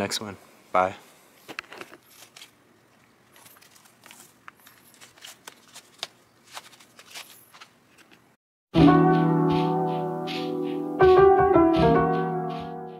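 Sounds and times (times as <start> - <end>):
shoelaces rustling: 1.4 - 8.4.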